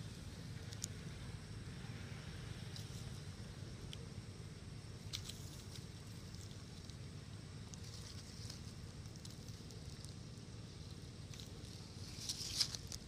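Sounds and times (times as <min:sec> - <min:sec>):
low steady rumble: 0:00.0 - 0:13.0
faint ticks: 0:00.5 - 0:01.0, 0:03.8 - 0:04.1, 0:05.0 - 0:10.2
dry leaves crackling and rustling: 0:05.1 - 0:13.0.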